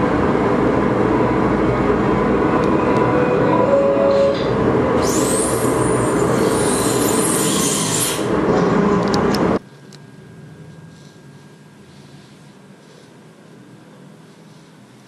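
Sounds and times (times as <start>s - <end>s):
low hum: 0.0s - 5.8s.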